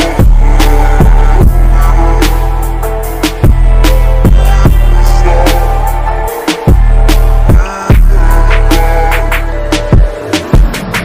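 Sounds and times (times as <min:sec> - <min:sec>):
electronic beat with heavy bass: 0:00.0 - 0:11.0.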